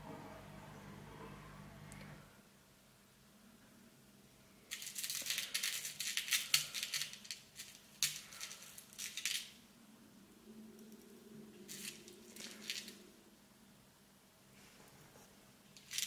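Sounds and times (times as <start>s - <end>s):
crystal chips clicking in plastic box: 4.7s - 9.5s.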